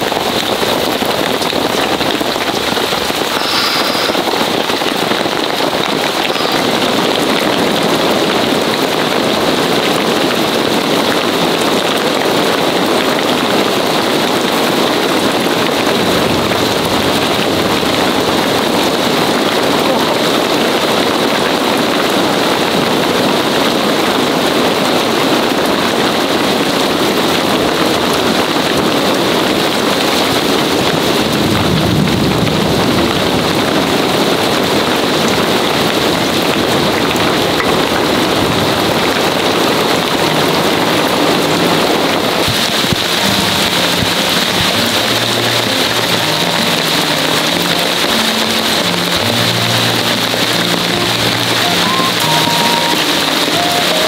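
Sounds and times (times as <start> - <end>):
heavy rain falling: 0.0 - 54.0
low music notes: 39.5 - 54.0.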